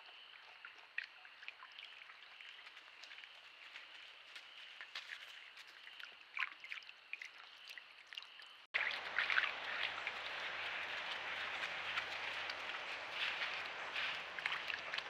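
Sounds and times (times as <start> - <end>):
creek water running: 0.0 - 15.0
ticks and splashes of footsteps: 0.0 - 15.0
animal footsteps scuffing: 2.6 - 5.9, 8.8 - 15.0.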